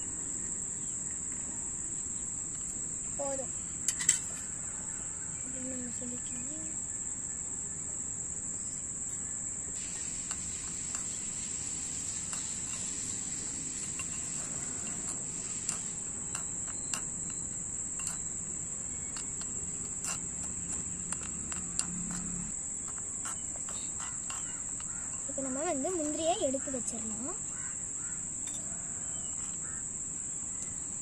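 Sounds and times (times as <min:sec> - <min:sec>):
high-pitched insect drone: 0:00.0 - 0:31.0
spoon clicking on clay pot: 0:12.2 - 0:25.4.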